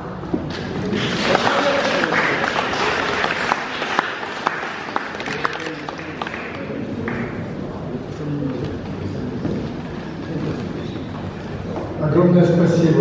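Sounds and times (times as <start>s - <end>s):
audience applauding: 0.5s - 7.7s.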